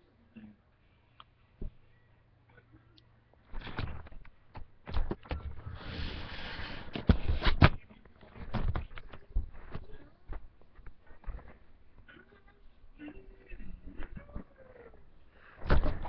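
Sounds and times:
rustling: 5.4s - 12.1s.

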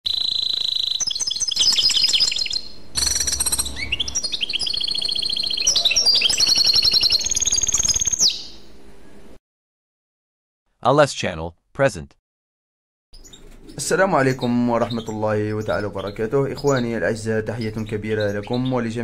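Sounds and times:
songbird trilling: 0.1s - 8.6s, 13.2s - 19.0s.

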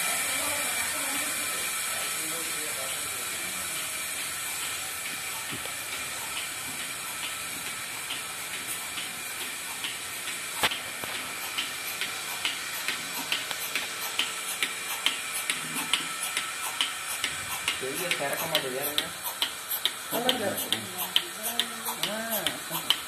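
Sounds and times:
milking machine hissing: 0.0s - 23.0s
rhythmic clicking: 0.0s - 23.0s.

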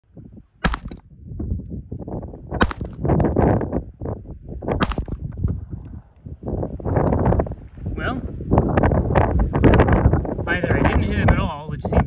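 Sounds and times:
gunshots: 0.6s - 1.0s, 2.6s - 3.1s, 4.8s - 5.2s.

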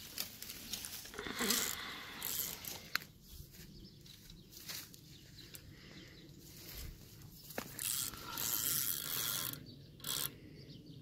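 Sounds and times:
footsteps crunching through dry reeds: 0.0s - 8.4s.

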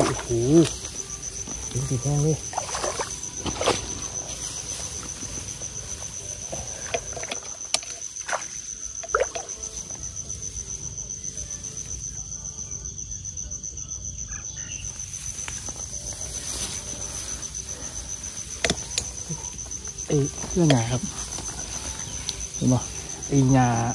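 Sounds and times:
insect trilling: 0.0s - 23.9s
short knocks or splashes: 2.5s - 3.9s.

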